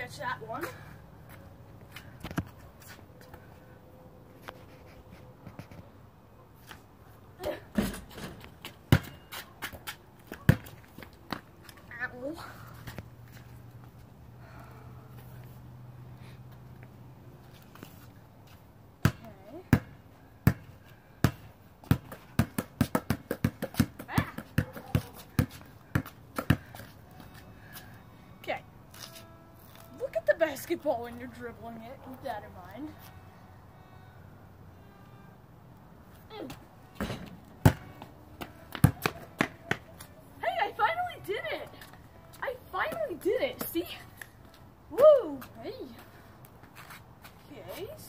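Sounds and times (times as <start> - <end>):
basketball knocking on concrete: 7.7 - 11.4, 19.0 - 26.9, 36.5 - 39.9.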